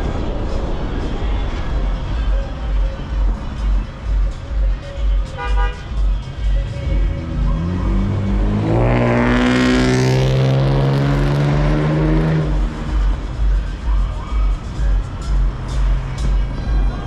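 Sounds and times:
music with bass beat: 0.0 - 17.0
vehicle engine passing by: 6.6 - 13.5.

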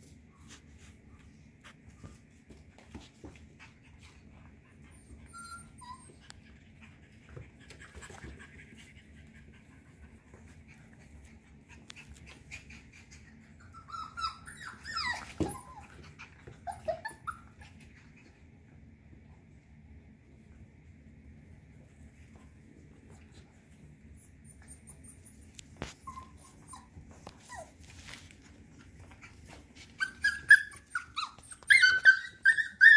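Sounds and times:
puppies whining and yipping: 4.4 - 6.6, 12.2 - 18.2, 24.2 - 28.4, 29.0 - 32.9.

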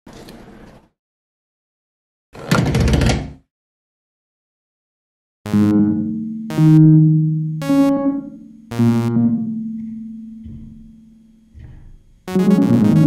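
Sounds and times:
fast sequenced synth pattern: 5.5 - 8.1, 8.7 - 9.4, 12.3 - 13.0
reverberant synthesizer notes: 5.5 - 13.0.

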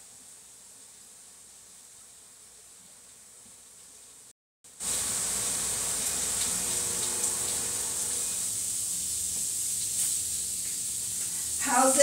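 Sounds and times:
steak sizzling in a pan: 4.8 - 12.0.

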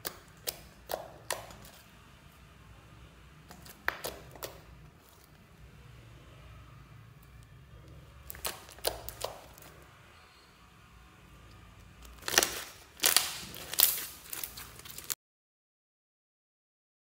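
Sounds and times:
slime crackling and popping: 0.0 - 1.8, 3.5 - 5.3, 8.2 - 9.8, 12.0 - 15.2.

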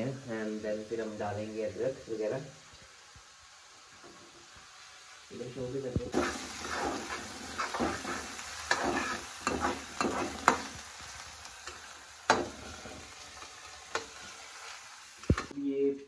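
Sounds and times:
onions sizzling in oil: 0.0 - 15.6
utensil scraping a pan: 6.1 - 10.8.

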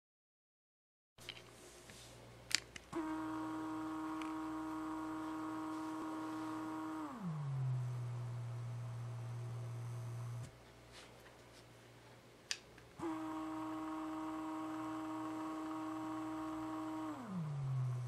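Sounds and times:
shade motor whining: 2.9 - 10.5, 13.0 - 18.0
motor click: 4.0 - 5.4.

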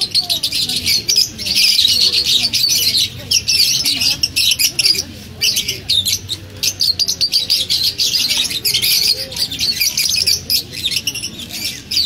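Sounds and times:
lovebirds chattering: 0.0 - 12.0.

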